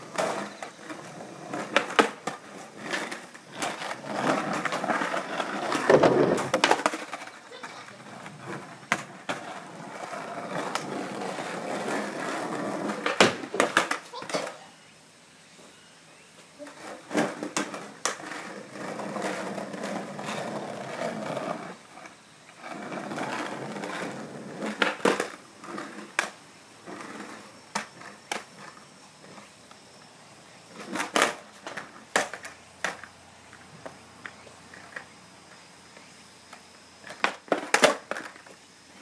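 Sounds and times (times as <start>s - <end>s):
skateboard slapping down: 0.0s - 14.6s, 16.6s - 21.7s, 22.6s - 28.8s, 30.7s - 35.6s, 36.5s - 38.6s
skateboard wheels rolling on concrete: 0.0s - 39.0s
skateboard tail popping clacks: 1.5s - 9.5s, 12.8s - 14.5s, 30.8s - 35.6s, 36.5s - 38.6s.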